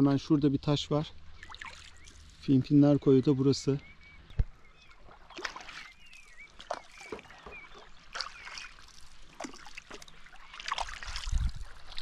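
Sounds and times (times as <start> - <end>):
trickling water: 0.5 - 12.0
paddle strokes in water: 4.8 - 12.0.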